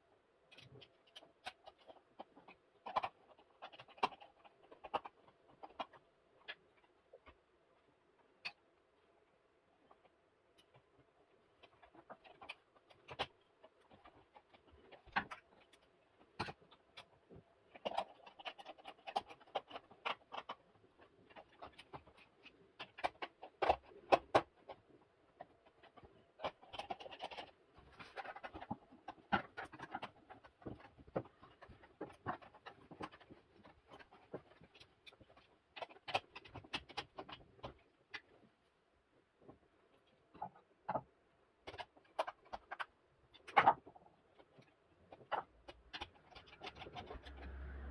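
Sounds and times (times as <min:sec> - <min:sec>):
small clicks and knocks: 0:00.4 - 0:47.9
cable rustling: 0:09.8 - 0:38.6.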